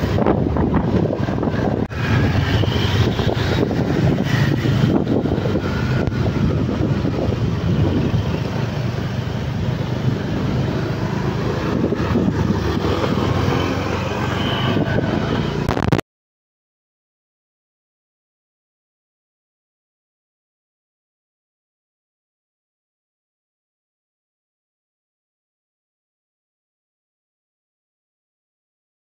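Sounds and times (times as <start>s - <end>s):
wind buffeting microphone: 0.0s - 15.8s
vehicle engine and road noise: 0.0s - 16.0s.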